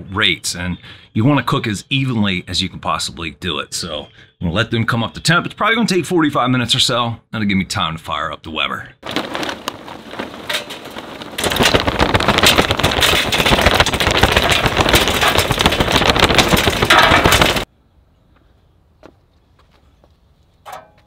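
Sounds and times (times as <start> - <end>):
charcoal clattering into metal: 9.0 - 17.7.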